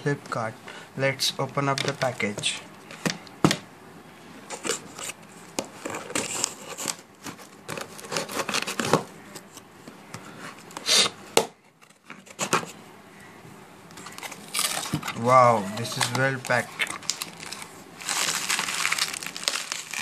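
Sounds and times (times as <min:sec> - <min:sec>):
packing tape tearing: 0:05.8 - 0:09.0, 0:14.1 - 0:15.2, 0:15.8 - 0:20.0.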